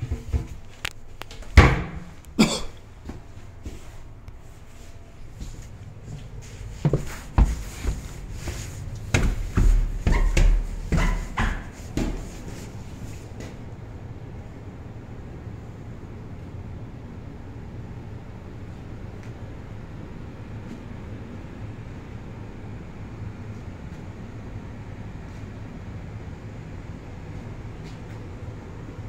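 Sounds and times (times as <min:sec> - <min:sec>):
footsteps going down stairs: 0:00.0 - 0:13.7
door bumped shut: 0:01.6 - 0:02.1.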